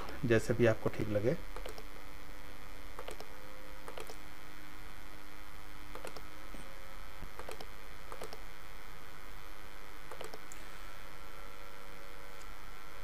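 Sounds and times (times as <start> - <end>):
electrical mains hum: 0.0 - 13.0
computer mouse clicks: 1.6 - 1.9, 3.0 - 4.2, 5.9 - 6.3, 7.4 - 8.4, 10.1 - 10.6.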